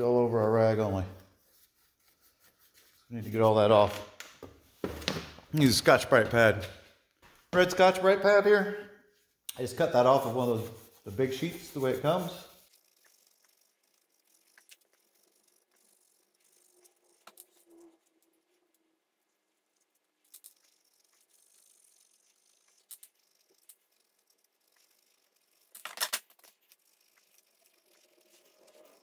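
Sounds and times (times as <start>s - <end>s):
scouring pad scratching metal: 9.6s - 18.8s, 19.8s - 29.0s.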